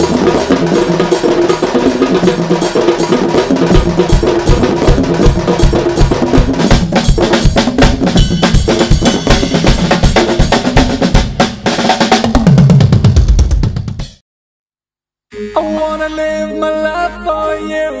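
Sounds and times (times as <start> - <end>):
drum-heavy music: 0.0 - 14.2.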